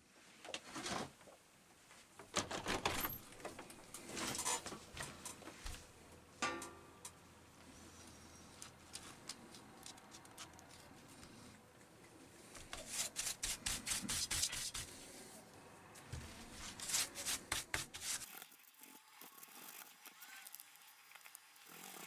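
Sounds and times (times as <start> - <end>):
cotton swab rubbing: 12.7 - 15.1.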